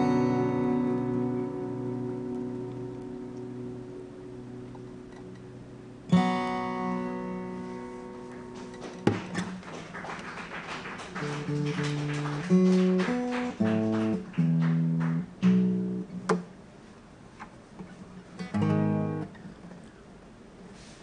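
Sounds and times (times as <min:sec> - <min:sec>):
acoustic guitar: 0:00.0 - 0:21.0.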